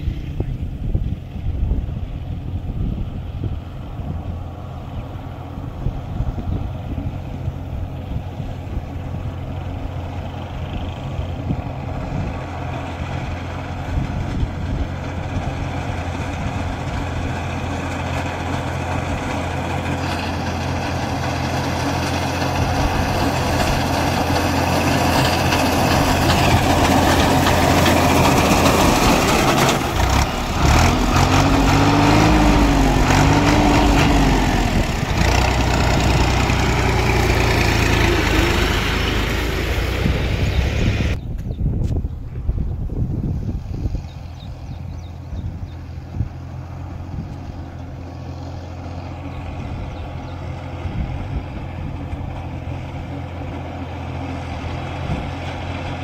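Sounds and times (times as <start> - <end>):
tractor diesel engine under load: 0.0 - 56.0
reaper machine working noise: 5.3 - 41.2.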